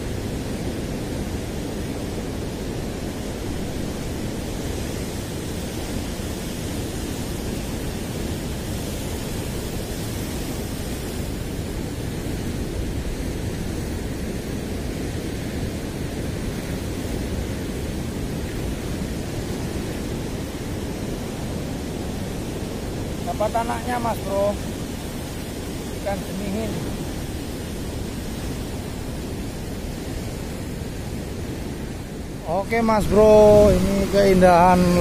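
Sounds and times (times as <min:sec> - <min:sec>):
sea surf breaking on rocks: 0:00.0 - 0:35.0.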